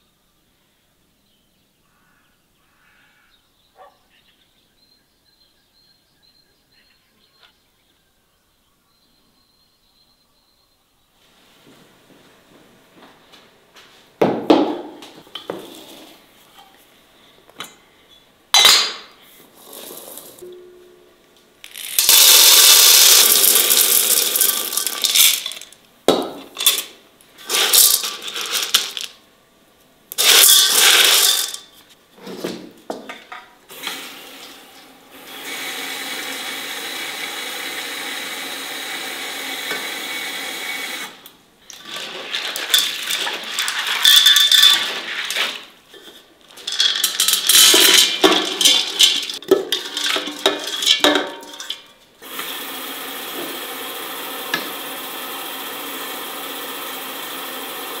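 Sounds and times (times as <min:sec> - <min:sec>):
bottles and pots clinking: 0:18.6 - 0:19.1, 0:41.9 - 0:45.6, 0:46.6 - 0:51.9
food rattling into a pot: 0:21.6 - 0:29.2, 0:30.1 - 0:31.7, 0:41.7 - 0:45.7, 0:46.5 - 0:51.9.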